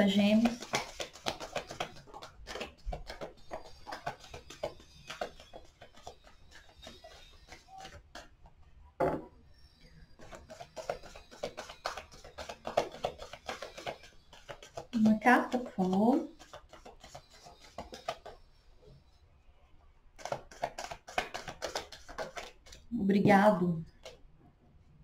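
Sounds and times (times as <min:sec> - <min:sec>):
cards being shuffled by hand: 0:00.0 - 0:08.5, 0:10.2 - 0:18.6, 0:20.2 - 0:23.0, 0:23.8 - 0:24.2.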